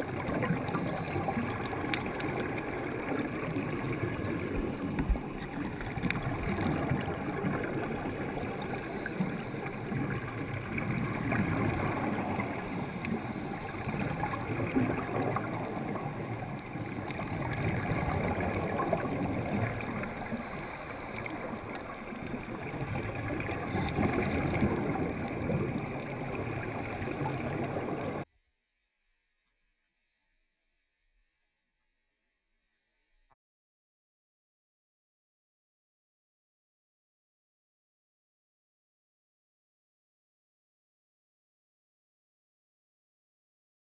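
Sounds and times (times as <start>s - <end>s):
muffled underwater gurgle: 0.0s - 28.3s
regulator bubbles: 0.0s - 28.3s.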